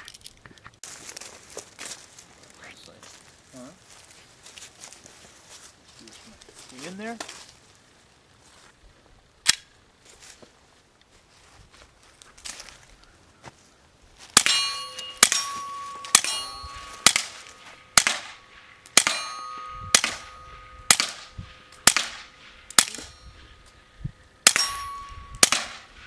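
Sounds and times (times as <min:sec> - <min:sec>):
suppressed pistol shots: 0:14.4 - 0:23.2, 0:24.4 - 0:26.0
metallic ring: 0:14.4 - 0:26.0.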